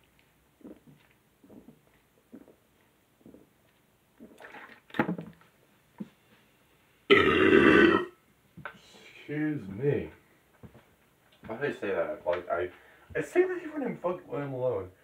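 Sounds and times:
person gulping: 0:00.6 - 0:02.6, 0:04.2 - 0:04.8, 0:07.1 - 0:08.2
loud burp: 0:07.1 - 0:08.2.

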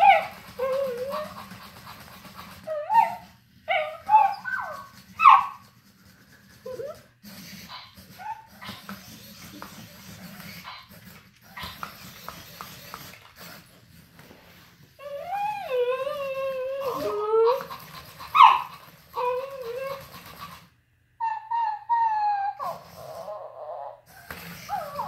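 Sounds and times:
dog yips and whimpers: 0:00.0 - 0:01.6, 0:02.6 - 0:05.7, 0:06.6 - 0:09.6, 0:15.0 - 0:20.2, 0:21.2 - 0:24.0, 0:24.6 - 0:25.0.

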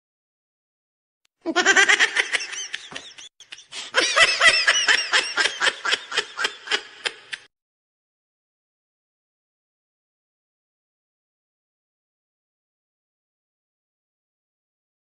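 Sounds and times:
person laughing: 0:01.4 - 0:07.5.

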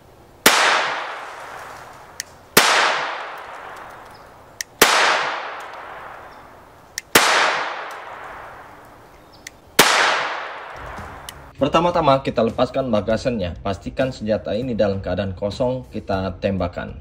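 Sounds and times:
pistol shots echoing: 0:00.4 - 0:01.6, 0:02.5 - 0:09.0, 0:09.8 - 0:11.5.

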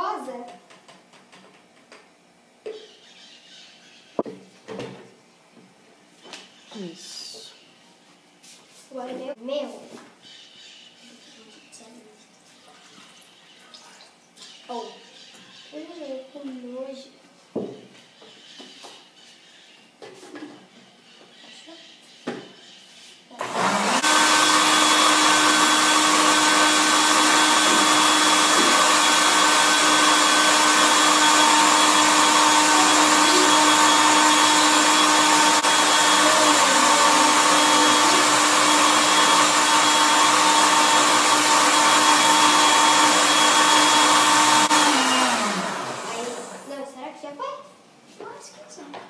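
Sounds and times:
electric blender running: 0:23.4 - 0:46.7.

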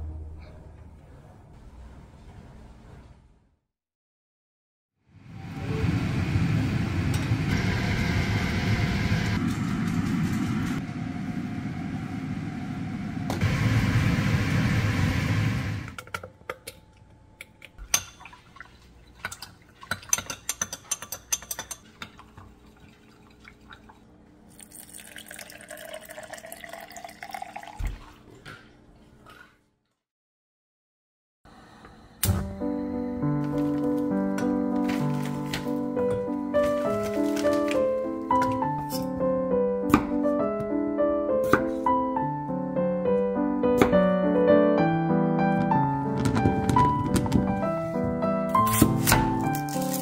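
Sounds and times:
liquid pouring into container: 0:22.6 - 0:28.2.

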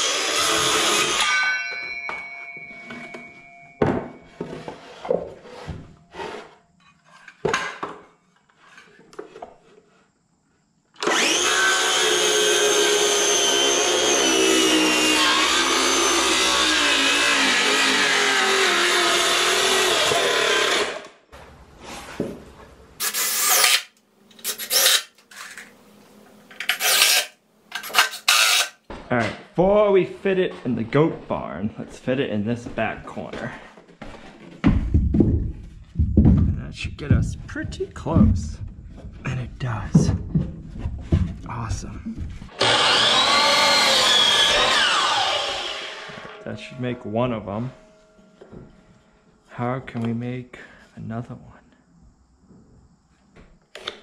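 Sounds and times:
circular saw cutting wood: 0:00.0 - 0:01.4, 0:11.0 - 0:21.2, 0:23.0 - 0:25.7, 0:26.5 - 0:28.8, 0:42.5 - 0:47.8
cordless drill running: 0:11.0 - 0:21.0, 0:23.0 - 0:23.9, 0:27.8 - 0:28.7, 0:42.5 - 0:46.4
board knocking: 0:34.6 - 0:41.5.

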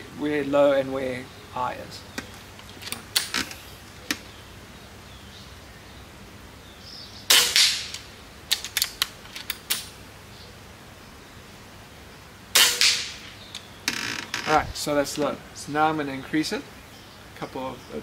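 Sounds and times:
air rifle shot: 0:07.3 - 0:08.1, 0:12.5 - 0:13.4.

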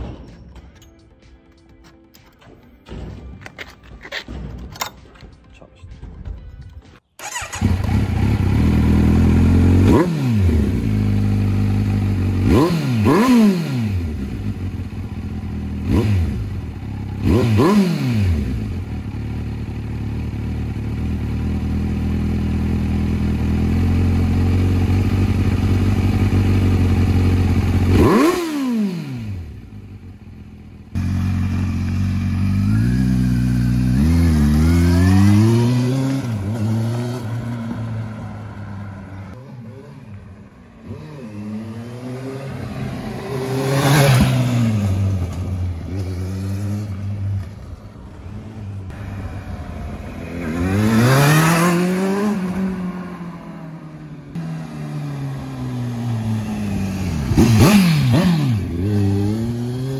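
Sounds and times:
motorcycle throttle blips: 0:07.2 - 0:09.2
motorcycle engine idling: 0:07.2 - 0:10.0, 0:10.6 - 0:12.6, 0:14.2 - 0:17.4, 0:18.4 - 0:28.2, 0:29.4 - 0:35.6
motorcycle pulling away: 0:07.2 - 0:59.9.

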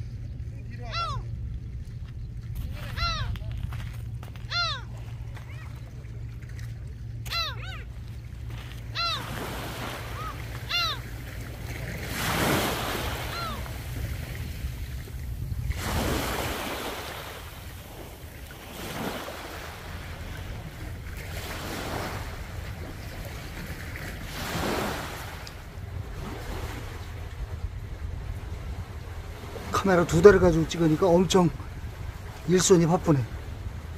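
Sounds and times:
wind rumble on microphone: 0:00.0 - 0:33.9
waves washing onto pebbles: 0:11.4 - 0:22.8, 0:23.4 - 0:25.5.

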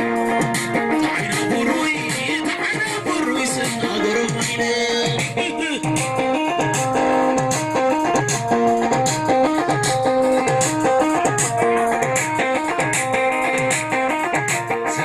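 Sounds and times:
dance music over loudspeakers: 0:00.0 - 0:06.9.

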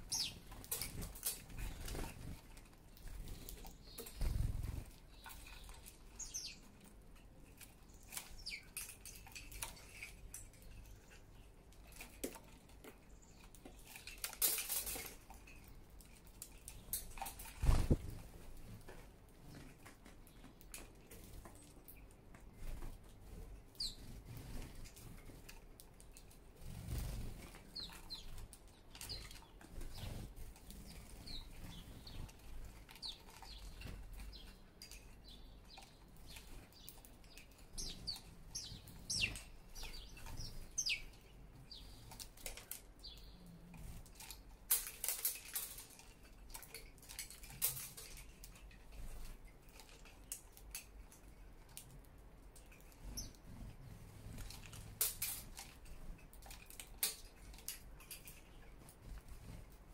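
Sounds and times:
sparrows chirping: 0:00.0 - 0:18.8, 0:19.4 - 0:50.7, 0:52.6 - 0:59.7
birds pecking at seed: 0:00.0 - 0:59.9
bird wing flutters: 0:17.5 - 0:18.3.

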